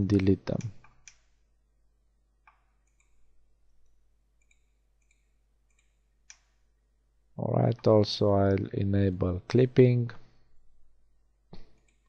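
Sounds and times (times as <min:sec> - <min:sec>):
computer keyboard and mouse clicks: 0:00.5 - 0:01.3, 0:02.5 - 0:03.2, 0:04.4 - 0:06.6.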